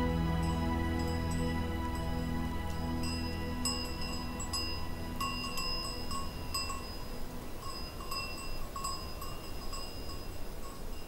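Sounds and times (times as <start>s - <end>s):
goat bells clinking: 3.0s - 11.0s.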